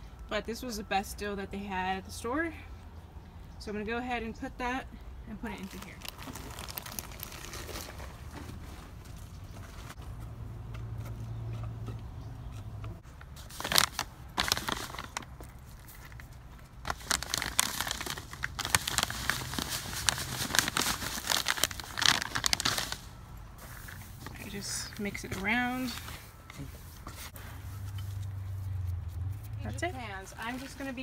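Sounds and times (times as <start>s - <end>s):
plastic bag crinkling: 5.5s - 10.0s, 13.4s - 24.7s.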